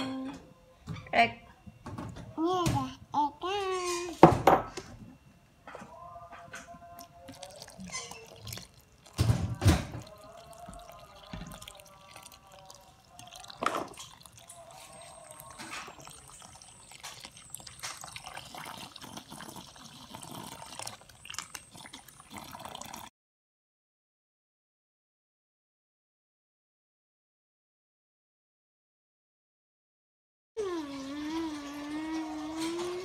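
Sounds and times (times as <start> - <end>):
water pouring and splashing: 7.0 - 23.1, 30.6 - 33.0.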